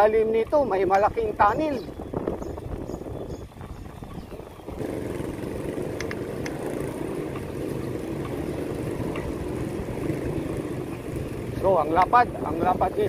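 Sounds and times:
bicycle rolling on concrete: 0:00.0 - 0:13.0
faint ticks: 0:06.0 - 0:06.6.

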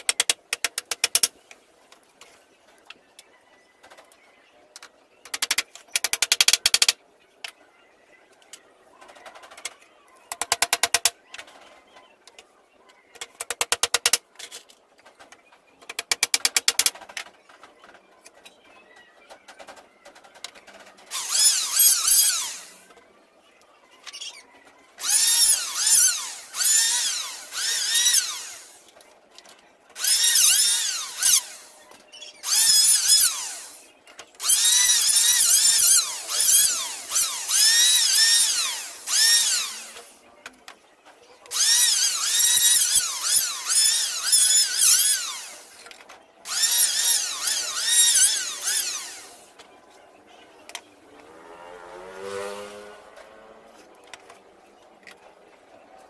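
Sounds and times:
rattling bursts: 0:21.1 - 0:22.8, 0:25.0 - 0:28.8, 0:30.0 - 0:31.7, 0:32.4 - 0:33.8, 0:34.4 - 0:40.2, 0:41.5 - 0:45.8, 0:46.5 - 0:49.5
electric planer whining: 0:25.0 - 0:28.8, 0:34.5 - 0:40.1, 0:41.5 - 0:45.8, 0:46.5 - 0:49.5.

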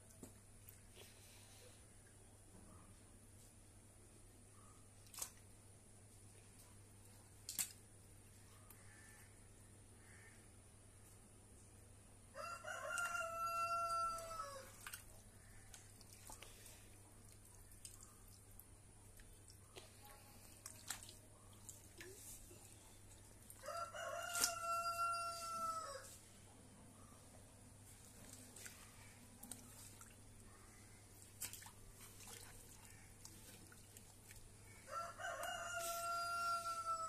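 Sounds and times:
rooster crowing: 0:12.3 - 0:14.7, 0:23.6 - 0:26.2, 0:34.8 - 0:37.0.

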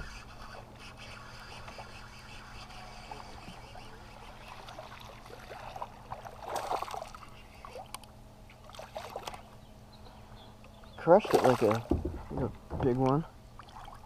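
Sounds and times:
lure splashing on water: 0:03.1 - 0:09.5, 0:11.1 - 0:12.2
fish splashing at surface: 0:04.4 - 0:07.2, 0:11.2 - 0:12.0.

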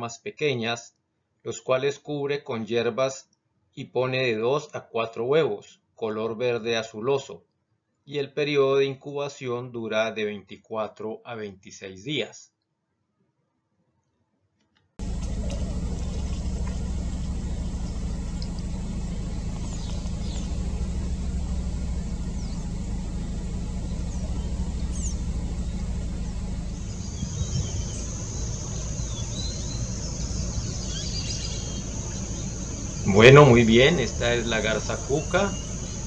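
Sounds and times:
insect buzz: 0:15.0 - 0:36.0
low rumble of distant engine: 0:15.0 - 0:36.0
faint bird chirps: 0:15.1 - 0:36.0.

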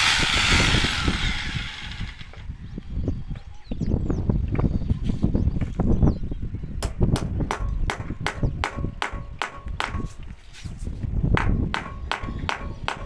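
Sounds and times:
hammer blows on metal: 0:11.3 - 0:13.0.

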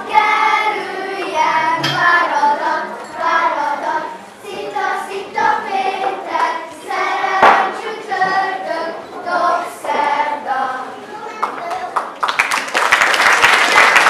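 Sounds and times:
children singing folk song: 0:00.0 - 0:11.6
sharp knock: 0:07.4 - 0:07.8.

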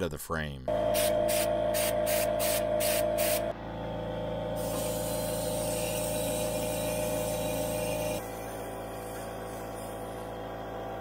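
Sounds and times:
spray gun hissing: 0:00.9 - 0:03.5, 0:04.6 - 0:10.3.

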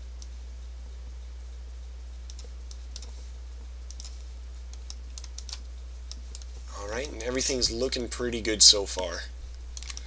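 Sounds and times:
steady low hum: 0:00.0 - 0:10.0
mouse and keyboard clicks: 0:04.8 - 0:07.2.

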